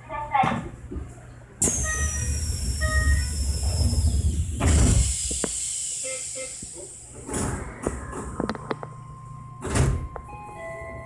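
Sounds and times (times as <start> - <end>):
doors shutting with whoosh: 1.6 - 6.0, 6.6 - 8.6
train doors hissing: 1.6 - 7.7
train low rumble: 1.8 - 11.0.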